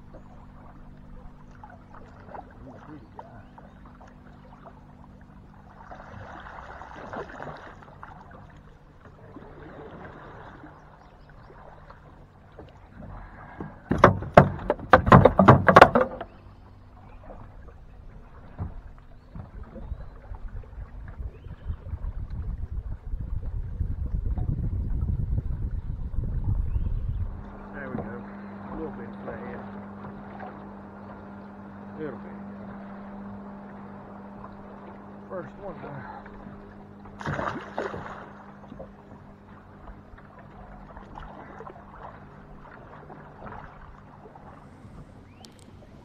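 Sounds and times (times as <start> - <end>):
knocking on aluminium boat: 13.6 - 16.4.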